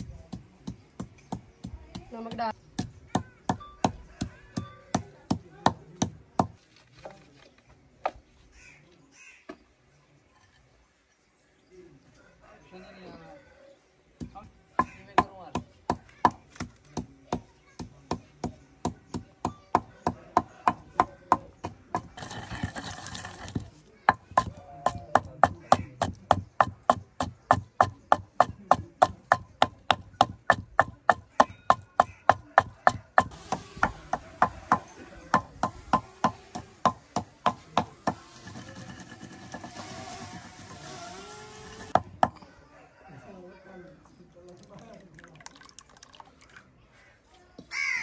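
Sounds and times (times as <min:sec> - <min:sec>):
wooden pestle pounding in mortar: 0:00.0 - 0:06.6, 0:14.2 - 0:39.7.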